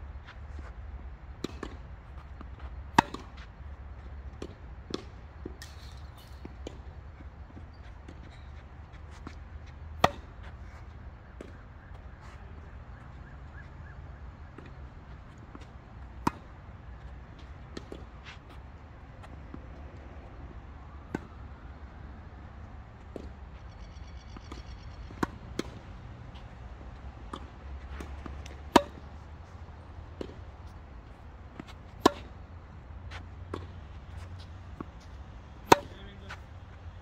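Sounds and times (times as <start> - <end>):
tennis balls struck by rackets: 1.4 - 3.5, 4.3 - 7.5, 9.2 - 10.6, 14.4 - 19.8, 24.2 - 37.0.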